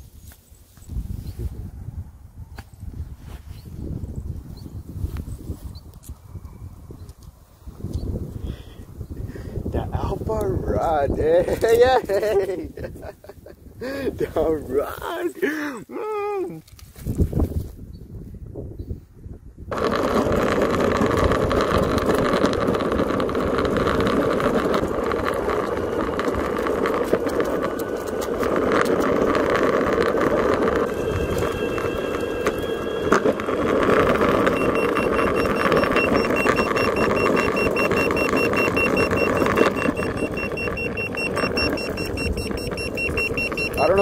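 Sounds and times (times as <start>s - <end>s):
wind on microphone: 0.0s - 15.0s, 16.2s - 44.0s
longboard wheels rolling on pavement: 0.0s - 15.8s, 19.4s - 44.0s
high electronic beeps: 30.7s - 44.0s.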